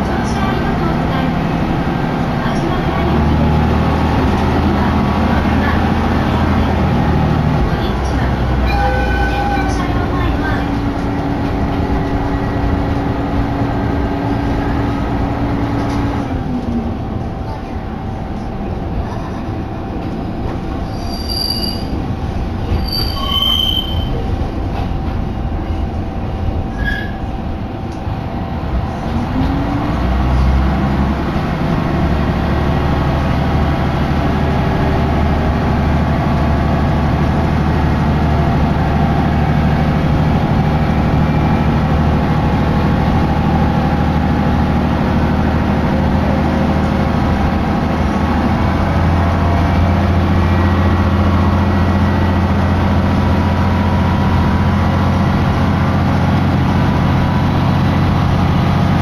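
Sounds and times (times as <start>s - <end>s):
railcar engine drone: 0.0s - 59.0s.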